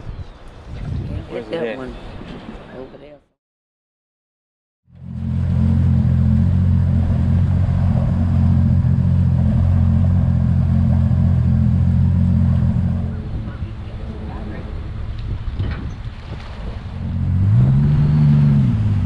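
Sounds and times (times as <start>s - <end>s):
outboard boat engine idling: 5.0s - 15.5s.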